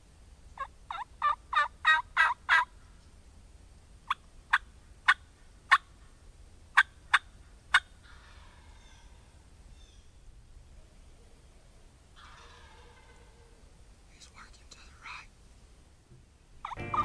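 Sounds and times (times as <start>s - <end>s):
wild turkey yelps: 0.6s - 2.7s, 6.8s - 10.2s, 12.2s - 13.6s, 16.6s - 17.0s
wild turkey clucks: 0.6s - 2.9s, 4.1s - 5.9s, 6.7s - 10.0s, 12.2s - 13.6s, 16.6s - 17.0s.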